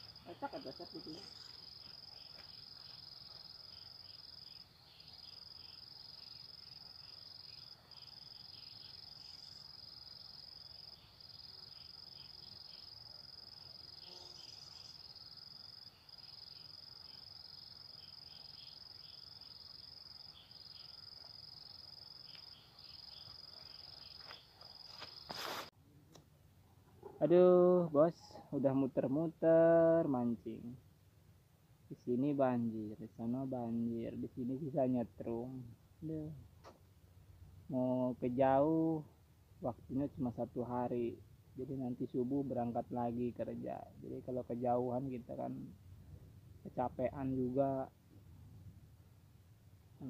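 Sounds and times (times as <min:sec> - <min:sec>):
high-pitched insect trill: 0:00.0 - 0:25.7.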